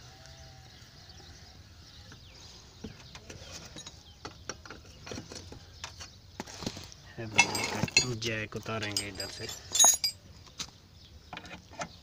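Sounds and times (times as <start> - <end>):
metallic tool clinks: 8.9 - 10.2.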